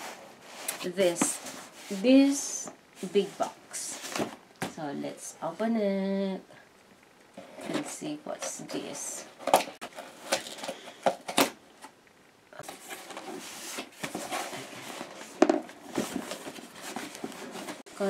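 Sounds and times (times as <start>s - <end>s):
cardboard flaps rustling: 12.6s - 17.8s.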